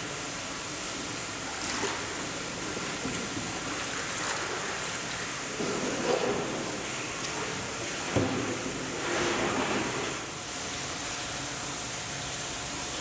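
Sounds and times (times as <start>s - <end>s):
pond water lapping: 0.0s - 11.6s
water sloshing: 1.2s - 10.4s.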